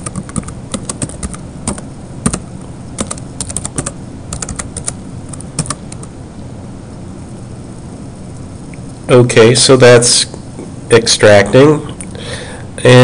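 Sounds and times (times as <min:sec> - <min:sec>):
keyboard keys clicking: 0:00.0 - 0:02.4, 0:03.0 - 0:06.1
steady background noise: 0:00.0 - 0:13.0.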